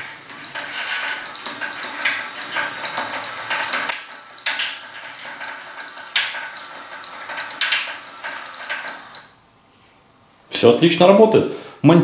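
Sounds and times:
blind slats clinking and clattering: 0:00.0 - 0:09.3
sharp clacks: 0:00.0 - 0:09.3
motor-driven bead chain turning: 0:00.0 - 0:09.4.

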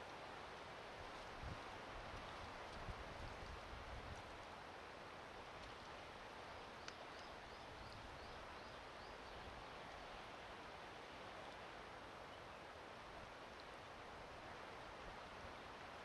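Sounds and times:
wind noise: 0:01.0 - 0:04.3.

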